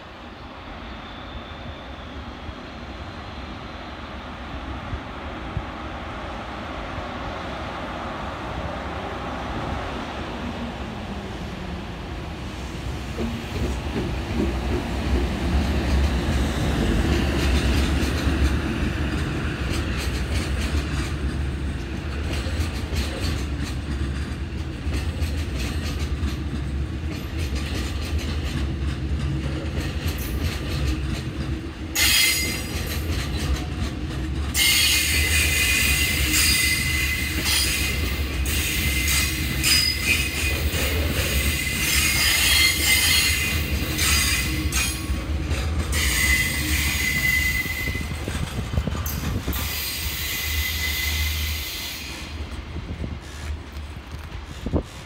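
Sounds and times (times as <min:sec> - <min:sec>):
train wheels rumbling and clattering: 0:02.8 - 0:55.0
high-pitched wheel squeal: 0:38.5 - 0:40.6, 0:45.9 - 0:48.2.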